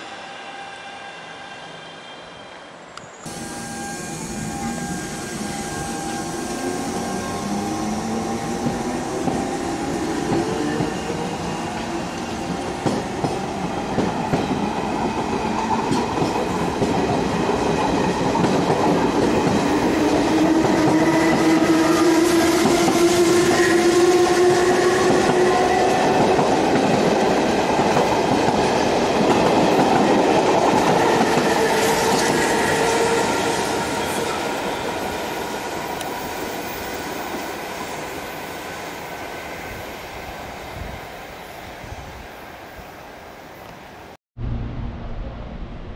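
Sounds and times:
train wheels clattering on rails: 8.4 - 36.2.

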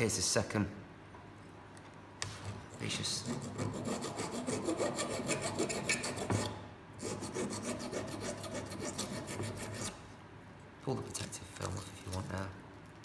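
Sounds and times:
hand file rasping on sheet metal: 3.0 - 10.0.

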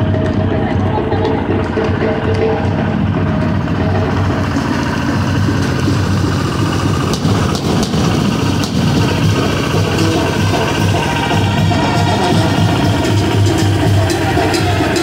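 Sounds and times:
tractor engine idling: 0.0 - 15.0.

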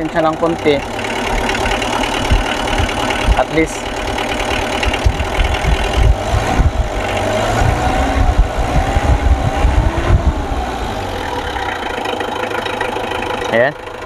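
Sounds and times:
diesel engine revving and idling: 0.0 - 14.0.

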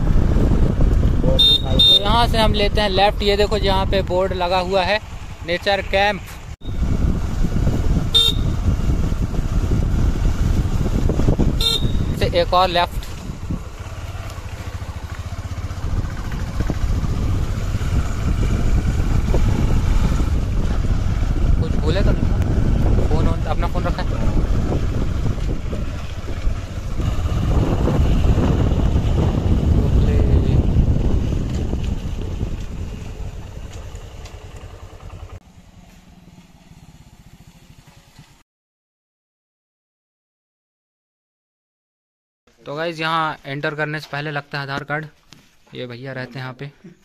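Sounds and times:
wind noise: 0.0 - 4.8, 6.6 - 13.8, 15.6 - 34.1
motorcycle engine running: 0.0 - 38.4.

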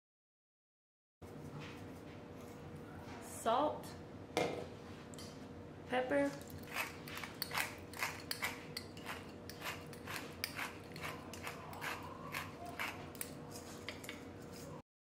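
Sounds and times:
pepper grinder clicking: 6.4 - 13.3.

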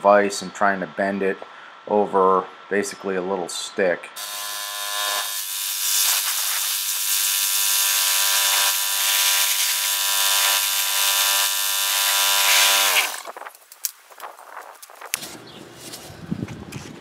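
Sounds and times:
water jet hissing against metal: 5.9 - 7.3
pressure washer engine running: 5.9 - 13.2.

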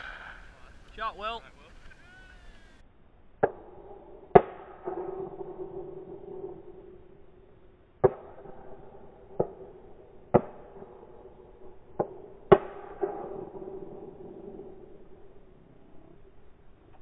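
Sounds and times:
shotgun shots: 0.0 - 1.1, 3.4 - 6.5.

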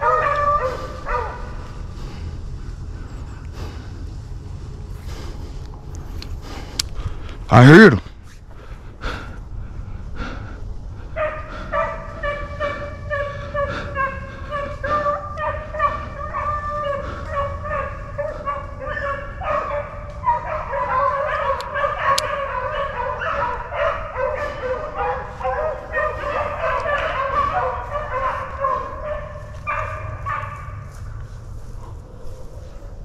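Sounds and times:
beagles baying: 0.0 - 4.1, 8.6 - 33.0.

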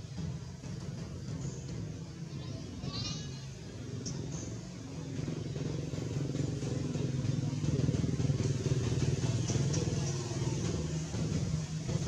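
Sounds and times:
motor engine running: 0.0 - 12.0.

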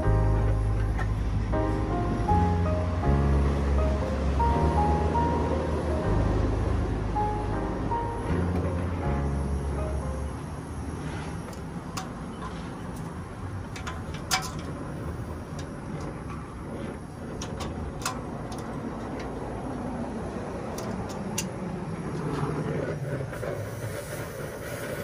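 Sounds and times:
torch flame hissing: 10.6 - 13.7, 14.7 - 25.0
sharp ticks: 17.3 - 19.4.

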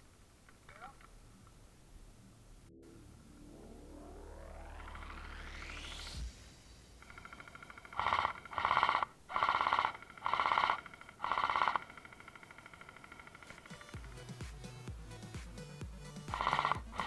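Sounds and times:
held synth tone: 2.6 - 10.9, 16.3 - 17.0
beeping electronic pulses: 2.6 - 14.0, 16.3 - 17.0.

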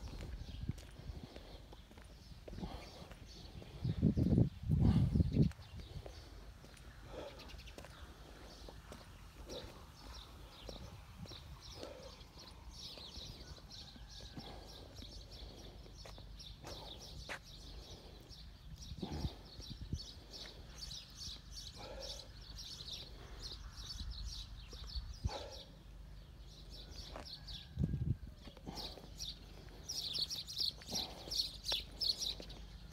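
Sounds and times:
footsteps on brick paving: 0.0 - 19.2, 27.0 - 32.9
small birds chirping: 0.0 - 32.9.

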